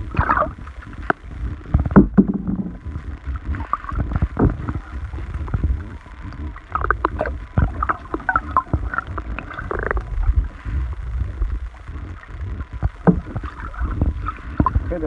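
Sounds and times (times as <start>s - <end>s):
underwater rumble of moving water: 0.0s - 15.0s
sharp clicks and knocks: 1.0s - 2.8s.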